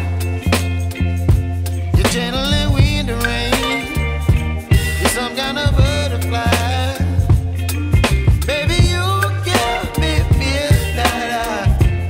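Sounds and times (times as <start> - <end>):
steady beat and bass: 0.0 - 12.0
song with singing voice: 1.8 - 7.6, 8.4 - 12.0.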